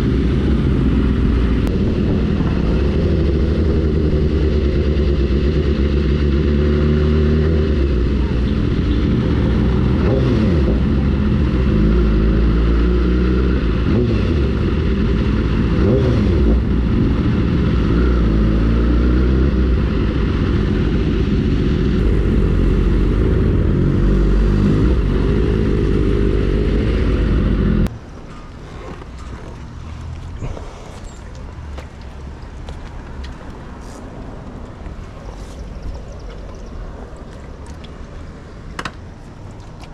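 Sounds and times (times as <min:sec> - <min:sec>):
motorcycle engine revving: 0:00.0 - 0:27.9
quiet steady engine rumble: 0:19.6 - 0:39.9.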